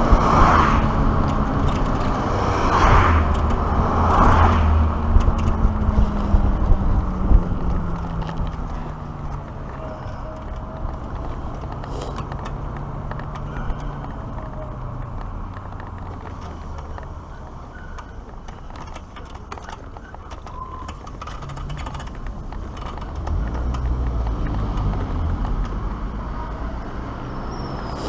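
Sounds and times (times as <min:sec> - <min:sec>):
wind noise on microphone: 0:00.0 - 0:09.2
motorcycle tyres rolling on bricks: 0:00.0 - 0:28.0.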